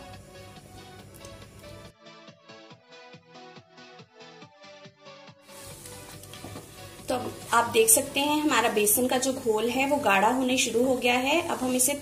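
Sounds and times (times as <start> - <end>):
batter sizzling in a pan: 5.4 - 12.0.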